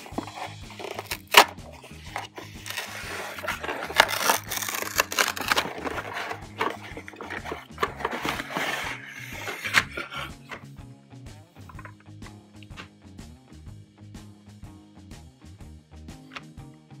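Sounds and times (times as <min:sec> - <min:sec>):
cardboard tearing: 0:00.0 - 0:10.6
plastic toy scraping and knocking: 0:00.0 - 0:10.6.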